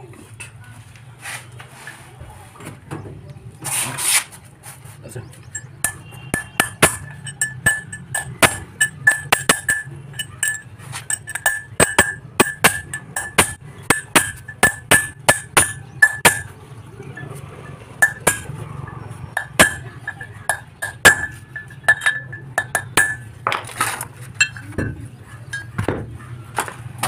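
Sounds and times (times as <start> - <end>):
hammer striking steel drift: 5.5 - 16.6, 17.8 - 23.4.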